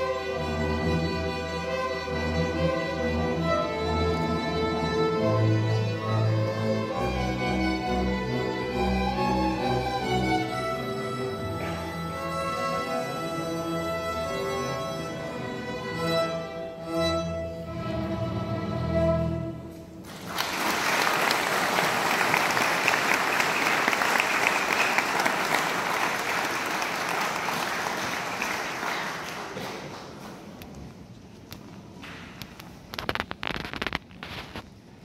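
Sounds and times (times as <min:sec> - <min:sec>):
string orchestra held chords: 0:00.0 - 0:20.1
audience applause: 0:20.0 - 0:30.6.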